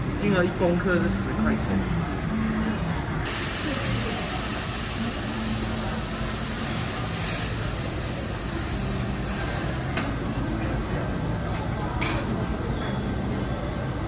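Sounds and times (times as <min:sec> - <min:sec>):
food sizzling on griddle: 0:03.3 - 0:10.0.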